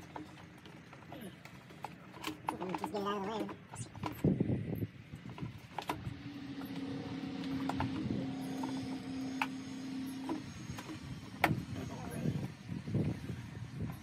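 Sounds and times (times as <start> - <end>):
steady hum: 4.0 - 14.0.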